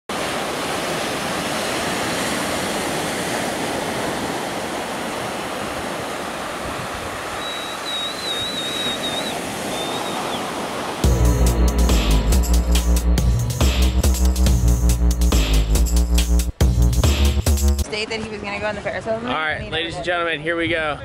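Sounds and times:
waves breaking on shore: 0:00.1 - 0:11.2
high wavering whistle: 0:07.4 - 0:10.5.

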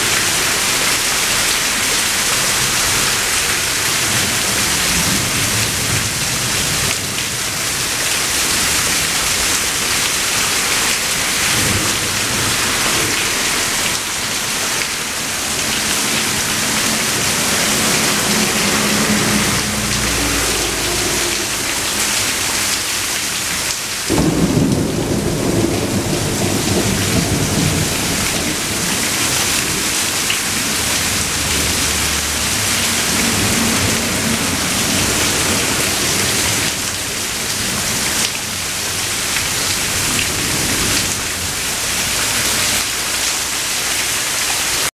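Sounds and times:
steady rain: 0:00.0 - 0:44.9
thunder rumbling: 0:08.6 - 0:38.0.

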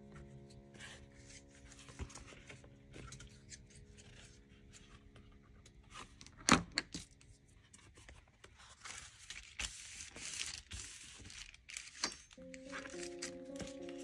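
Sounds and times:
gentle background music: 0:00.0 - 0:08.8, 0:12.4 - 0:14.0.

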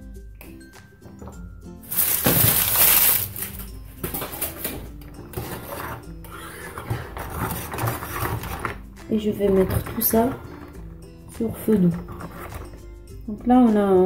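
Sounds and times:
soft background music: 0:00.0 - 0:14.0
whisk scraping in saucepan: 0:05.2 - 0:13.0.

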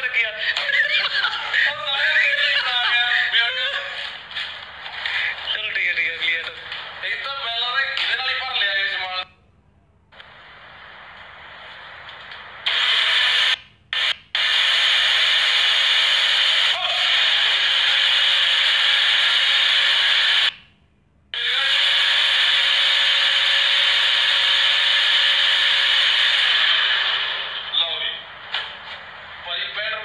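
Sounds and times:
blender motor whirring: 0:14.4 - 0:20.5, 0:21.4 - 0:27.7.

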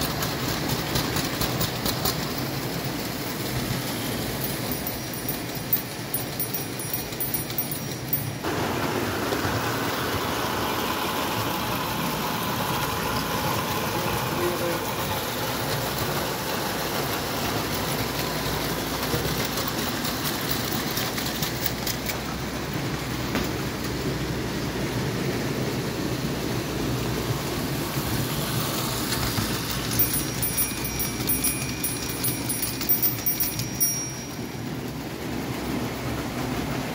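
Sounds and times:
model trains clattering on track: 0:00.0 - 0:25.9, 0:27.0 - 0:36.9.

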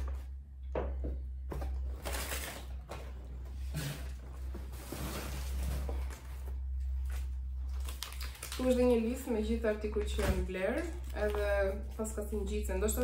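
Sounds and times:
packing paper rustling: 0:01.8 - 0:03.1, 0:04.5 - 0:12.4.

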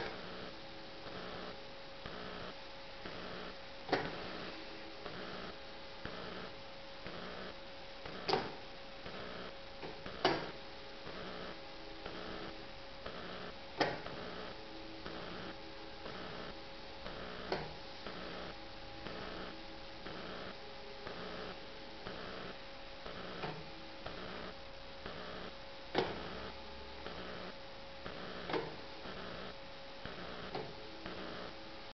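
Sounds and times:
steady electrical hum: 0:00.0 - 0:31.9
sharp clicks or knocks: 0:08.2 - 0:08.6, 0:09.8 - 0:10.6.

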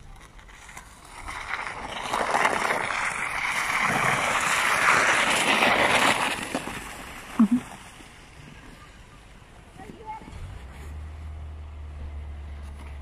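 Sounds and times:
scraping hiss of sliding on ice: 0:00.2 - 0:08.8.

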